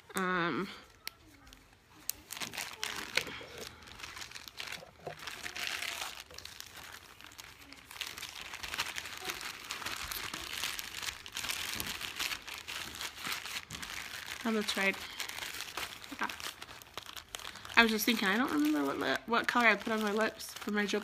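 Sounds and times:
crinkling and rustling: 0.0 - 21.0.

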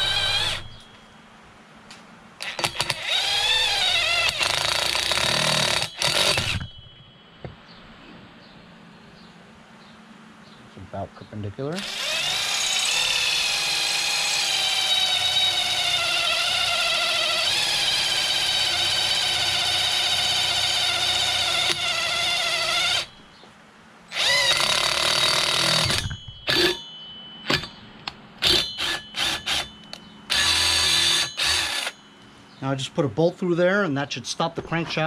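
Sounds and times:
cordless drill boring metal: 0.0 - 0.9, 2.4 - 7.0, 11.8 - 23.2, 24.1 - 26.9, 28.4 - 32.0.

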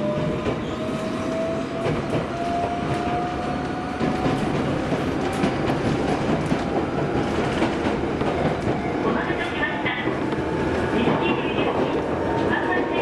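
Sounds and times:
train wheels rumbling: 0.0 - 13.0
rail joint clicks: 1.7 - 13.0.

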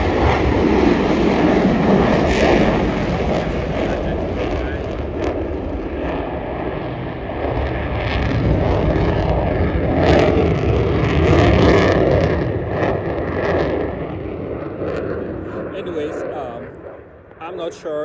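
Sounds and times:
fighter jet flying past: 0.0 - 18.0.

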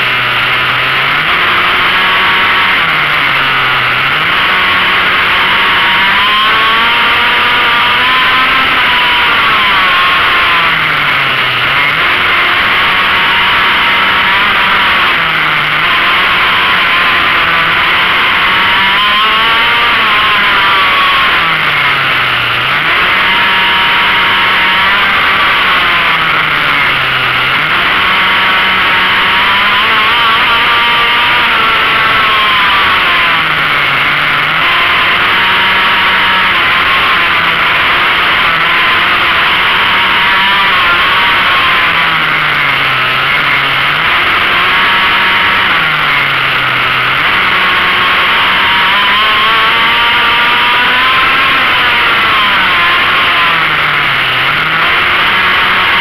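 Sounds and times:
go-kart engine revving: 0.0 - 56.0.

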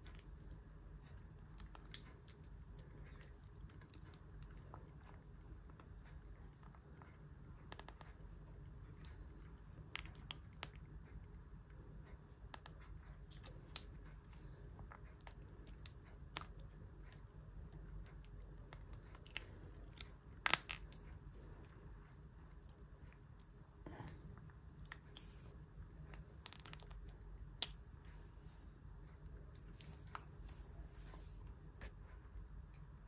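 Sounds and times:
crickets trilling: 0.0 - 33.0.

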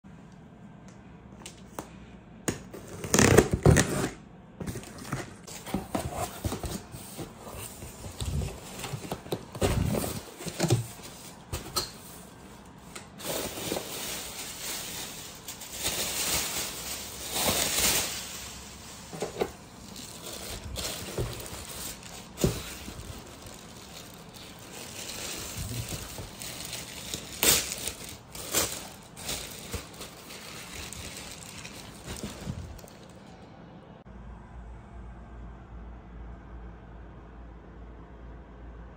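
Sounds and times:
plastic wrapping crinkling: 4.7 - 33.2.

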